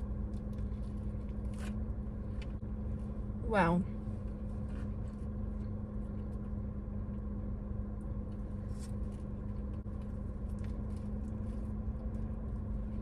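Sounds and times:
car engine hum inside cabin: 0.0s - 13.0s
sandwich wrapper crackles: 8.3s - 12.5s
chewing: 8.3s - 12.7s.

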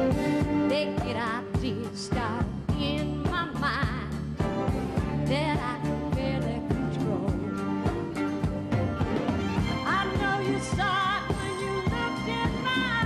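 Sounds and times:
band with steady drum beat: 0.0s - 13.0s
woman singing with vibrato: 0.6s - 4.2s, 5.2s - 7.8s, 9.8s - 13.0s.

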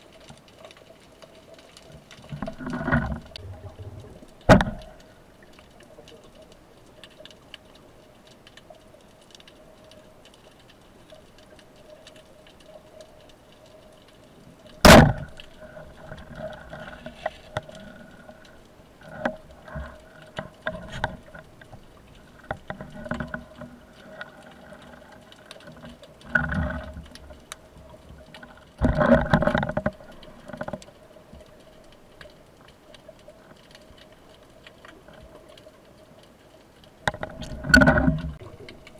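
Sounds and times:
faint steady hum: 0.0s - 38.9s
knocks and clicks underwater: 0.0s - 38.9s
bubbling bursts: 3.2s - 4.6s
speargun firing crack underwater: 4.5s - 4.9s, 14.8s - 15.4s.

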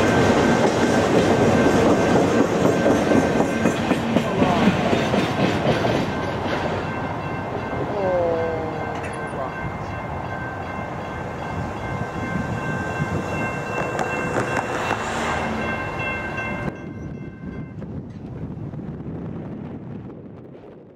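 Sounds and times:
train wheels rumbling on rails: 0.0s - 20.9s
high ringing tone: 6.2s - 17.8s.

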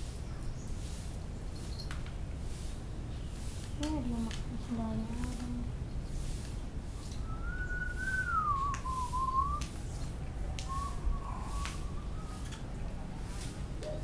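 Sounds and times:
person whistling: 7.2s - 9.6s, 10.7s - 12.5s
faint clicks: 10.5s - 10.8s.

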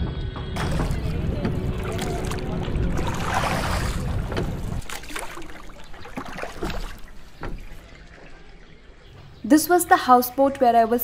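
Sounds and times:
low rumble: 0.4s - 9.0s
paddle strokes in water: 0.6s - 8.5s
water lapping against hull: 0.6s - 9.4s.

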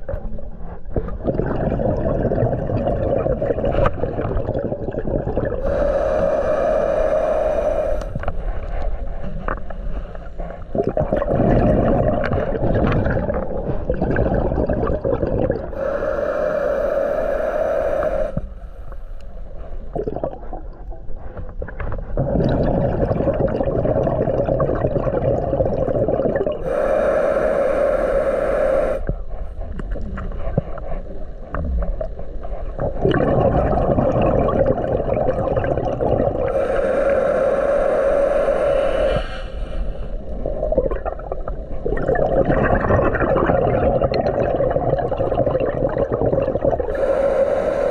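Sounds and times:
gurgling exhaled bubbles: 0.0s - 18.6s, 19.6s - 47.9s
hissing regulator inhale: 5.6s - 13.0s, 15.6s - 20.6s, 26.5s - 41.9s, 45.4s - 47.9s.

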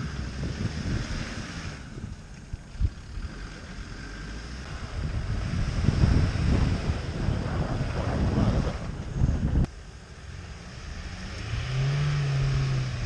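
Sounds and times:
wind buffeting microphone: 0.0s - 3.7s, 4.6s - 9.7s
distant engine straining: 0.0s - 13.0s.

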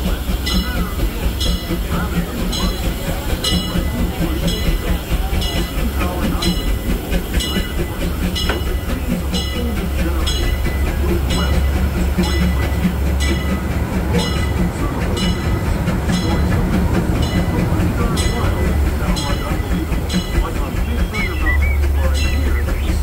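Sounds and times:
steam locomotive chuffing: 0.0s - 23.0s
steam train rumbling: 0.0s - 23.0s.

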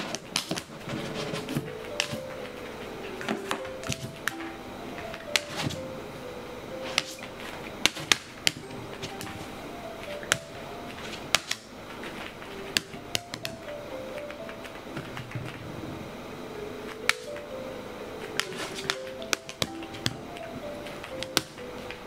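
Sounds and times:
soft background music: 0.0s - 22.0s.

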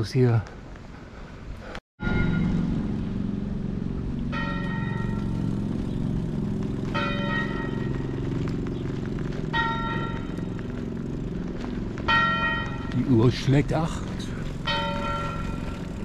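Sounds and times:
steady low rumble: 0.6s - 16.0s
tower clock bell striking: 2.0s - 2.8s, 4.2s - 5.7s, 6.9s - 8.2s, 9.5s - 10.4s, 12.1s - 13.5s, 14.5s - 16.0s.

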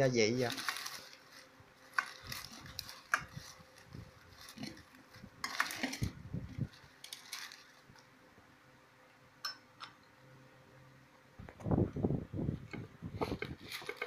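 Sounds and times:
paper strips crinkling and rustling: 0.2s - 8.1s, 13.3s - 14.0s.

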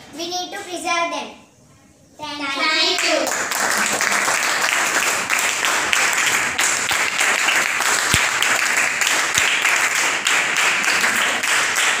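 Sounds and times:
roomful of people clapping: 2.8s - 12.0s.

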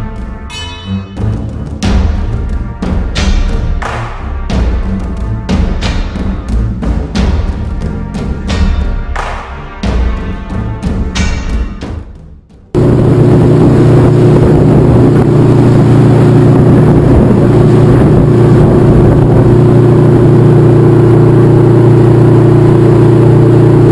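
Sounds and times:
boat engine low hum: 12.8s - 23.9s
rushing noise: 12.8s - 23.9s.

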